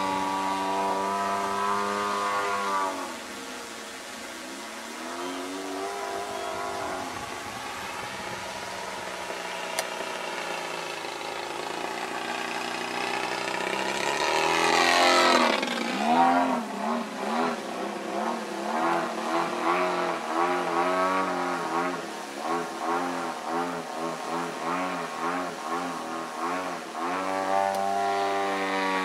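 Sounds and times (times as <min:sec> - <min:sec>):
model plane engine droning: 0:00.0 - 0:29.0.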